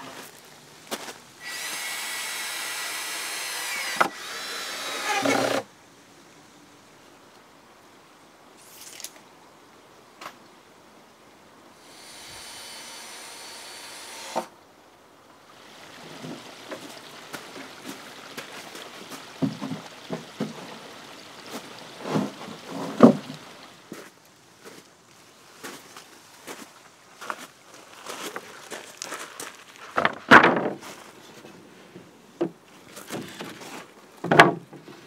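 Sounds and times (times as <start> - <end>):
wooden knocks and thuds: 19.4 - 20.8, 22.0 - 23.4, 30.0 - 30.9, 34.2 - 34.8.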